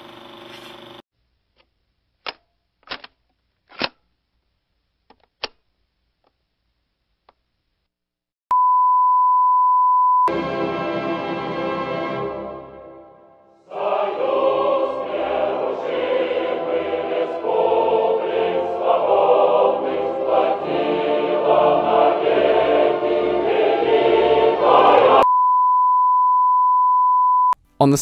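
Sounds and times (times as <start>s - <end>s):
choir singing with accompaniment: 10.3s - 25.2s.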